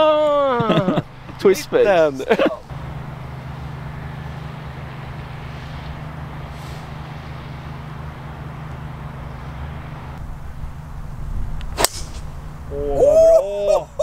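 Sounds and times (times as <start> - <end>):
steady low hum: 0.3 - 14.0
golf club striking ball: 11.6 - 12.4.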